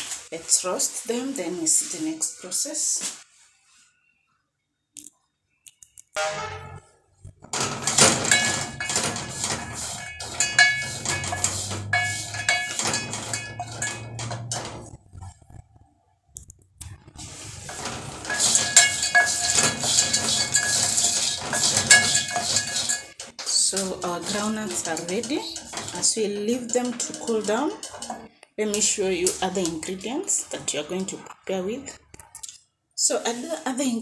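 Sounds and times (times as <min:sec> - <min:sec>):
pot ringing: 0:06.2 - 0:06.9, 0:07.6 - 0:14.9, 0:17.6 - 0:28.3
nuts rattling in metal pot: 0:07.5 - 0:15.6, 0:17.0 - 0:30.4.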